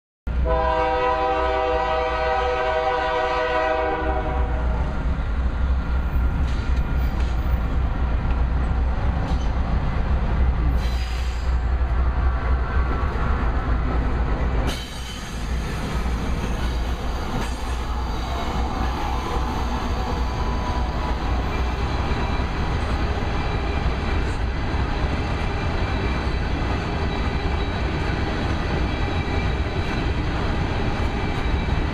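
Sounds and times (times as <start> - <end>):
diesel locomotive rumble: 0.3 - 31.9
locomotive air horn chord: 0.4 - 4.8
train wheels clattering on rails: 5.3 - 31.9.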